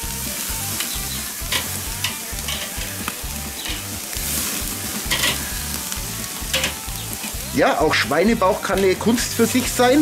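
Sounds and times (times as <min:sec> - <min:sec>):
fat flaring in coals: 0:00.0 - 0:10.0
meat sizzling on a grill: 0:00.0 - 0:10.0
metal tongs clicking: 0:01.5 - 0:02.8, 0:05.1 - 0:05.4.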